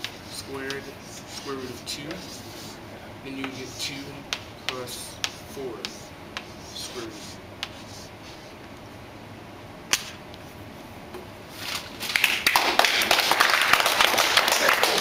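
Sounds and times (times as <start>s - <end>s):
group applauding: 12.0s - 15.0s.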